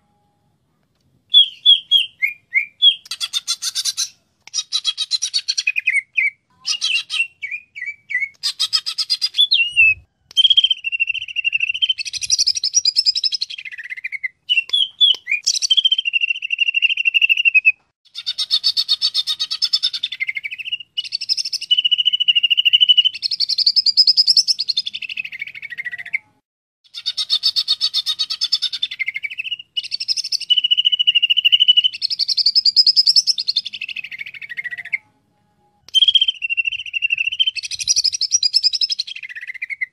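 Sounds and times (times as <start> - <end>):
bird singing trills and whistles: 1.3 - 26.3, 26.9 - 35.1, 35.9 - 39.9.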